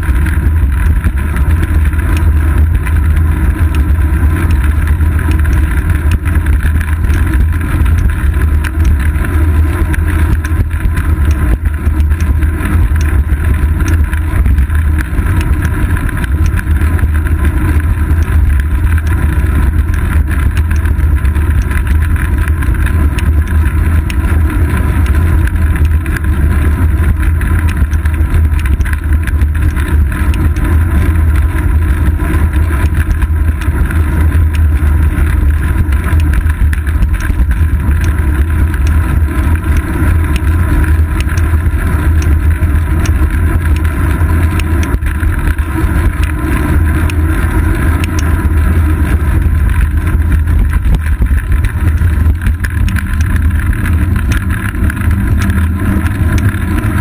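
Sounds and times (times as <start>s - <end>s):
wind buffeting and road rumble: 0.0s - 57.0s
faint ticks: 0.1s - 17.1s, 22.9s - 48.4s.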